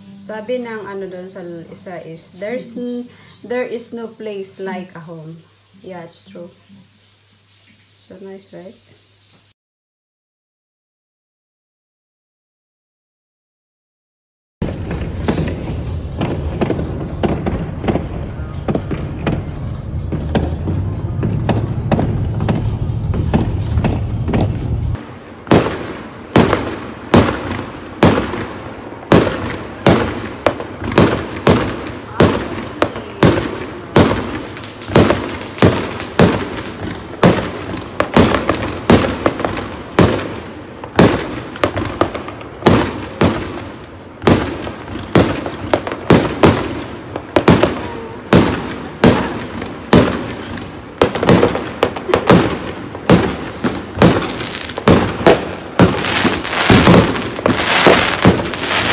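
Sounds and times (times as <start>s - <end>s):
fireworks bangs: 14.6s - 58.9s.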